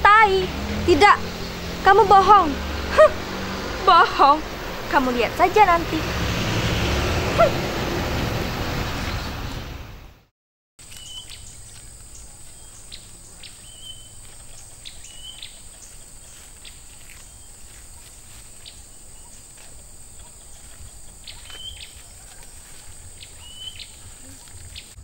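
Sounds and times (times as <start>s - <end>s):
insects droning: 0.0s - 9.8s, 10.8s - 25.0s
bird chirps: 10.8s - 25.0s.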